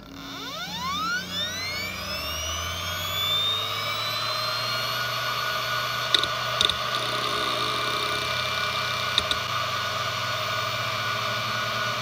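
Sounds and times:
hard drive motor whine: 0.0s - 12.0s
hard drive head clicks: 6.1s - 8.4s, 9.0s - 9.5s.

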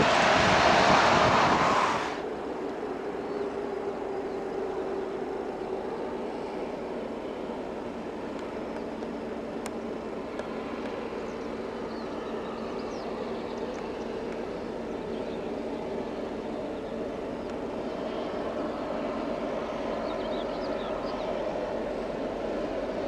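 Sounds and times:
distant diesel locomotive drone: 0.0s - 23.0s
faint birds chirping: 8.5s - 23.0s.

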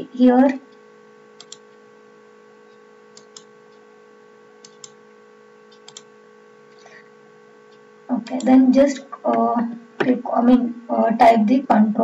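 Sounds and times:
electrical hum: 0.0s - 12.0s
computer mouse clicking: 1.4s - 1.8s, 2.7s - 3.8s, 4.6s - 5.0s, 5.7s - 6.1s.

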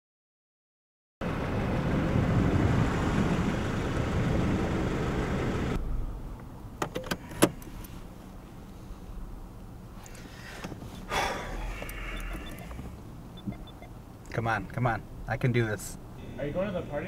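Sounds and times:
car tyre and engine noise: 1.2s - 16.1s
car cabin rumble: 10.1s - 14.0s
sharp clicks: 11.8s - 13.9s.

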